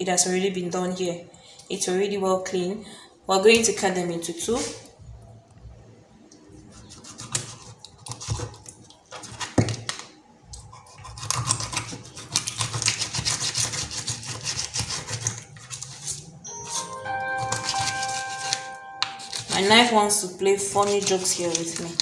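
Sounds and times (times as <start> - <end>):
knife crunching through fish: 10.7 - 16.1.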